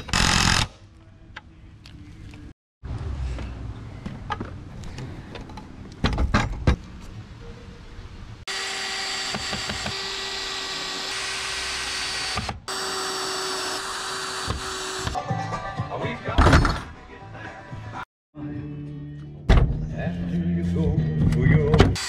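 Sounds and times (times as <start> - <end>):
cordless drill whining: 8.5 - 15.2.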